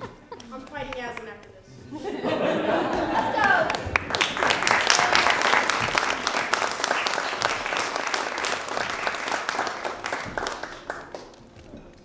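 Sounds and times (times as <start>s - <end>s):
audience applauding: 2.6s - 11.4s.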